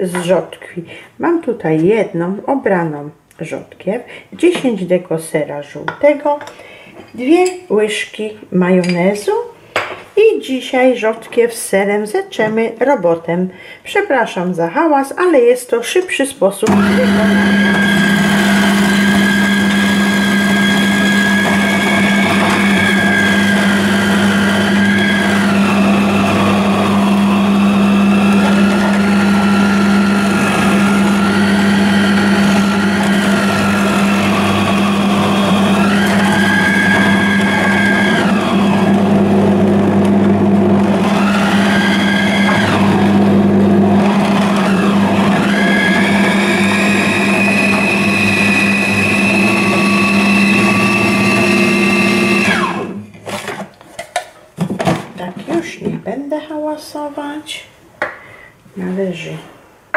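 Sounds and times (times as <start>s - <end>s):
food processor motor whining: 16.7s - 53.0s.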